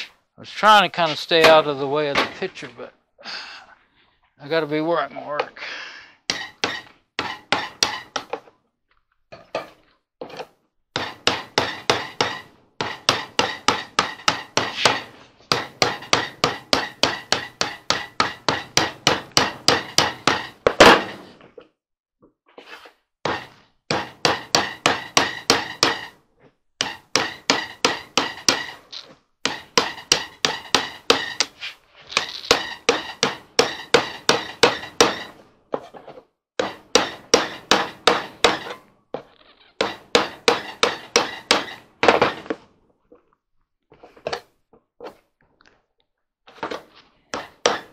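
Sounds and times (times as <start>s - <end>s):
hammer tapping metal blade: 6.3s - 8.4s, 10.3s - 21.2s, 23.3s - 26.2s, 26.8s - 28.9s, 29.5s - 31.6s, 32.2s - 35.4s, 36.6s - 38.8s, 39.8s - 42.5s.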